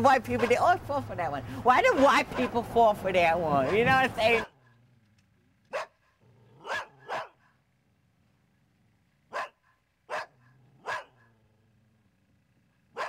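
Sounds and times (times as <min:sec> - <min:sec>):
dog barking: 0:03.6 - 0:04.6, 0:05.7 - 0:06.0, 0:06.6 - 0:07.4, 0:09.3 - 0:11.3.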